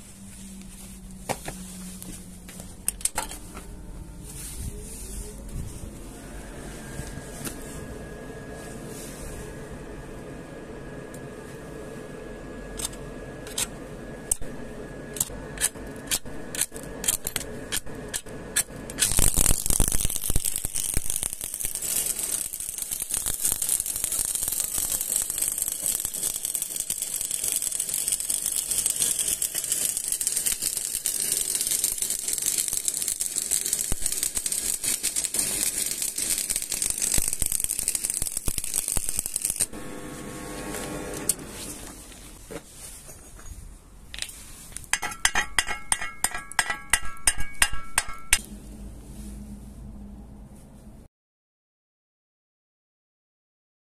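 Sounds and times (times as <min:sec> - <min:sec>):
welding arc crackling and hissing: 0:14.2 - 0:42.2.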